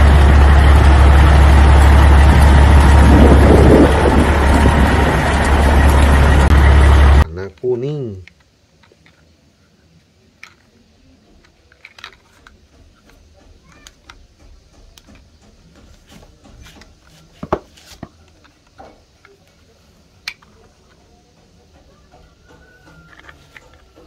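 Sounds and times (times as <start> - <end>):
plastic toys clicking and knocking: 7.5 - 9.4, 10.3 - 24.0.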